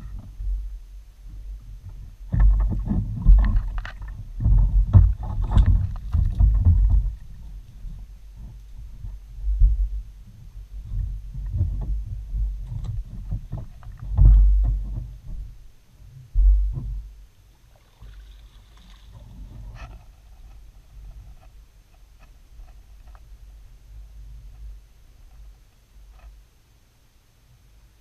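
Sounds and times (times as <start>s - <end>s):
water knocking against hull: 2.3s - 7.4s, 11.0s - 15.5s.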